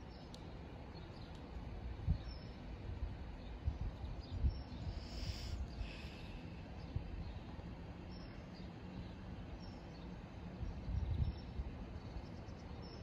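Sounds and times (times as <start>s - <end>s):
faint outdoor background noise: 0.0s - 13.0s
wind rumbling on microphone: 1.6s - 7.8s, 10.4s - 13.0s.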